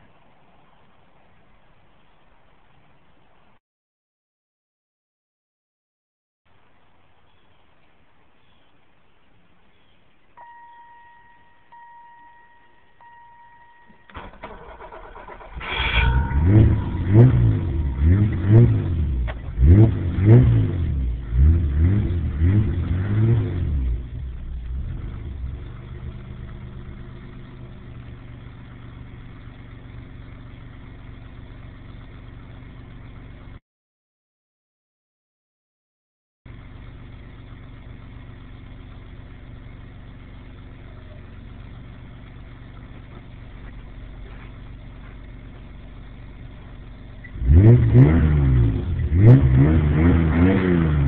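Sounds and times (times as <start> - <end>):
car engine idling: 6.5 - 33.6, 36.5 - 51.0
car warning beep: 10.4 - 19.0
car engine cranking and revving: 13.9 - 33.6, 36.5 - 51.0.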